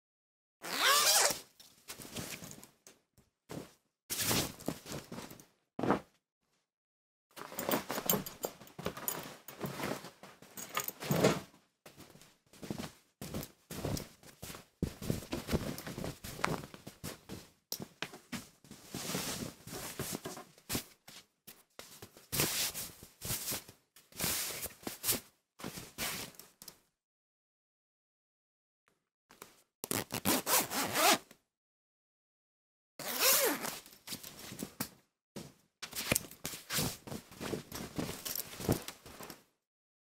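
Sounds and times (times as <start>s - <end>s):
cloth rustling and rubbing: 7.4s - 11.4s, 12.0s - 17.5s, 18.2s - 21.2s, 29.9s - 31.2s, 33.0s - 34.8s, 35.9s - 39.4s.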